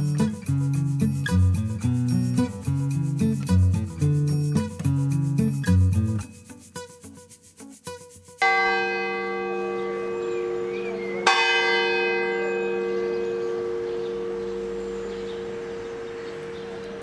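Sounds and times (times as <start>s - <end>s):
church bell ringing: 8.4s - 17.0s.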